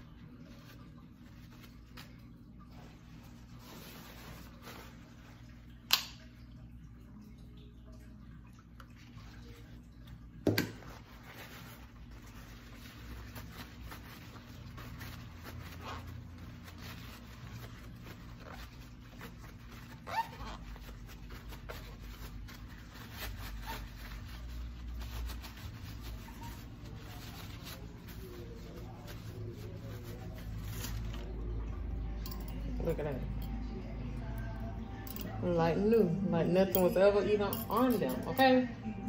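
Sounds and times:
paper towels rustling: 0:00.0 - 0:05.8, 0:10.8 - 0:31.7.

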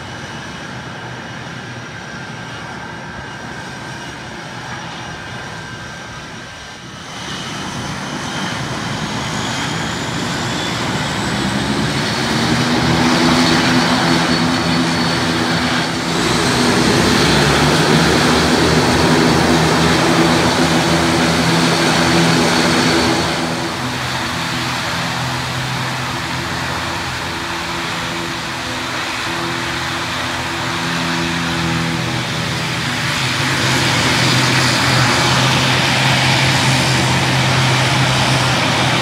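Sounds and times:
turboprop airliner taxiing: 0:00.0 - 0:39.0.

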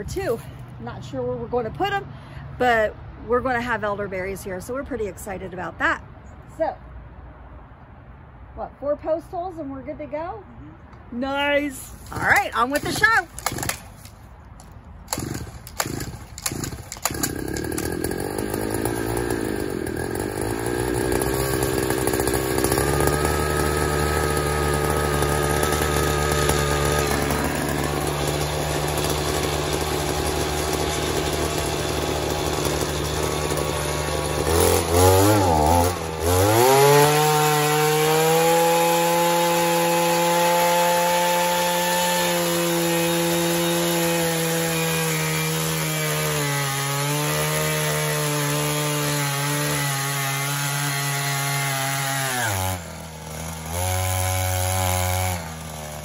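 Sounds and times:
earth auger engine running: 0:15.1 - 0:56.0.

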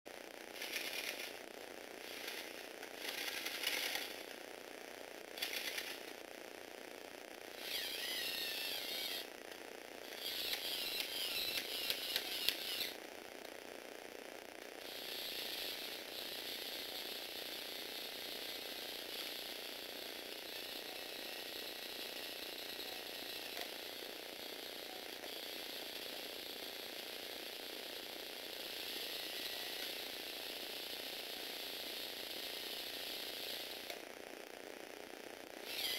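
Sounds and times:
toy motor and gears whirring: 0:00.5 - 0:01.4, 0:02.0 - 0:04.3, 0:05.4 - 0:06.2, 0:07.6 - 0:09.3, 0:10.0 - 0:13.0, 0:14.8 - 0:34.0, 0:35.6 - 0:35.9.

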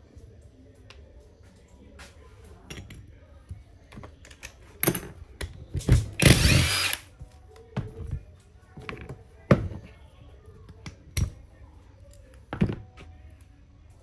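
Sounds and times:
cordless driver motor whine: 0:06.2 - 0:07.0.

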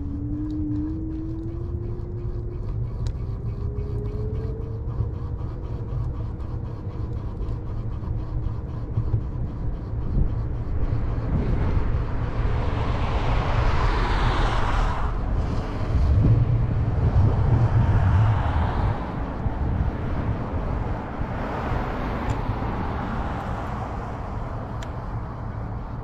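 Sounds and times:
distant engine drone: 0:00.0 - 0:26.0
low traffic rumble: 0:00.0 - 0:26.0
passing vehicle rush: 0:10.8 - 0:26.0.

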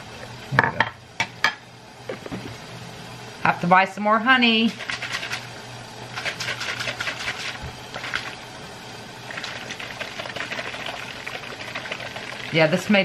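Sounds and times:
chicken sizzling in a frying pan: 0:03.1 - 0:13.0.

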